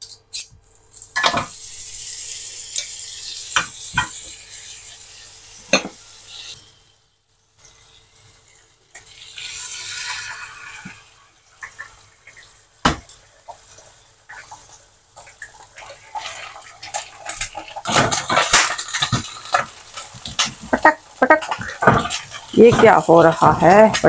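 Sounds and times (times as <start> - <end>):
eggs sizzling in a pan: 0.3 - 24.0
spatula clicking and scraping: 15.2 - 24.0
egg cracked against pan: 16.8 - 22.4.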